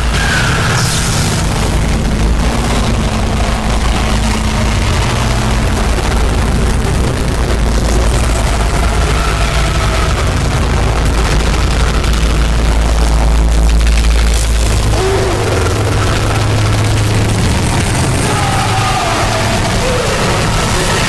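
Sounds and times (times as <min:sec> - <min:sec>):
dense noise music: 0:00.0 - 0:21.0
heavy low rumble: 0:00.0 - 0:21.0.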